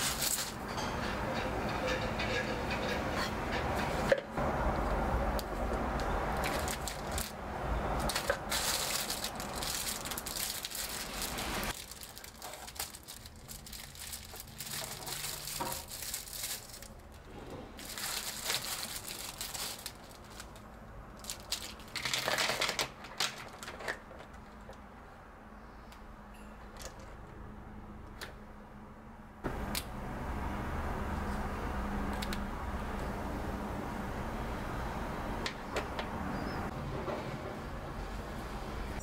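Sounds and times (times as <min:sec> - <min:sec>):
plastic packaging crinkling: 0:00.0 - 0:00.6, 0:06.4 - 0:07.4, 0:08.0 - 0:17.2, 0:17.8 - 0:24.3.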